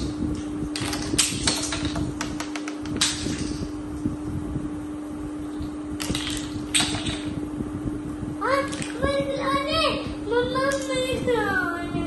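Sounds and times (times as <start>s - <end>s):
steady low hum: 0.0s - 12.0s
plastic blocks clicking on table: 0.8s - 3.5s.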